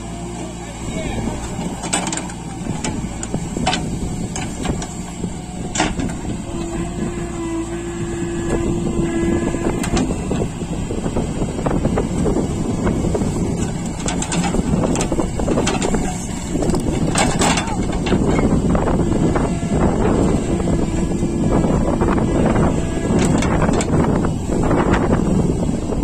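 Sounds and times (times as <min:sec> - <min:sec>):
heavy diesel engines rumbling: 0:00.0 - 0:26.0.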